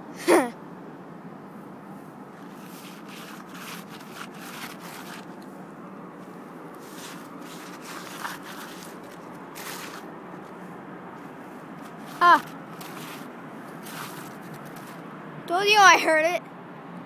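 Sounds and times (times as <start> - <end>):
footsteps crunching on gravel: 6.8 - 10.0, 11.8 - 15.0.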